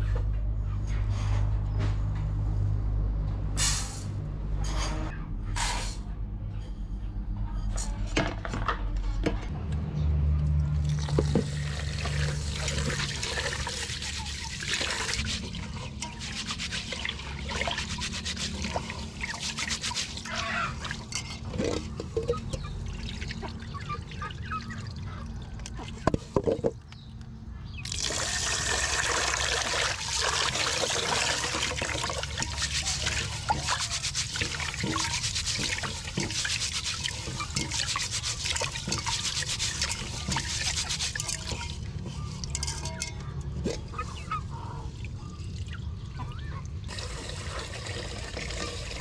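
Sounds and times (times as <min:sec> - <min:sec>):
water pouring into pot: 0:10.8 - 0:21.0, 0:27.9 - 0:42.6, 0:46.9 - 0:49.0
rice swished in water: 0:30.0 - 0:41.6.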